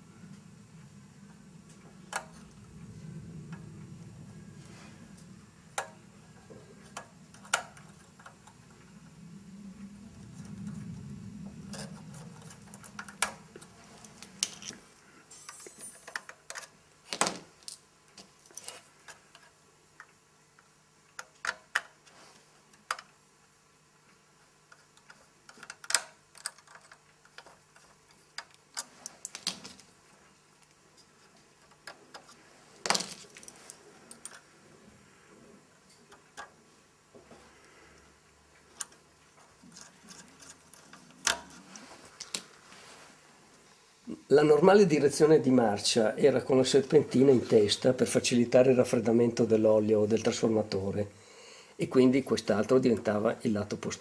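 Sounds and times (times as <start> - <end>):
low rumble: 0.0 - 15.0.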